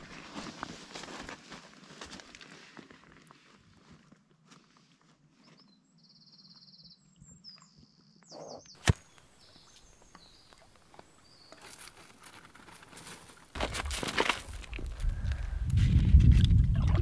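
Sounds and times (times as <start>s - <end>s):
faint birdsong: 5.3s - 12.5s.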